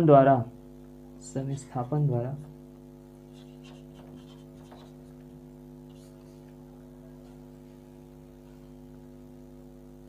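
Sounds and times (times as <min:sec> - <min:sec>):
electrical mains hum: 0:00.0 - 0:10.0
marker strokes on a whiteboard: 0:03.2 - 0:06.6.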